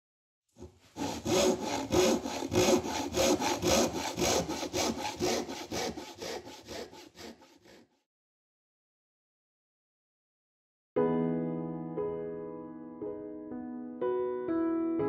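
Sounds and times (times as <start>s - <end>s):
hand saw cutting wood: 0.6s - 8.0s.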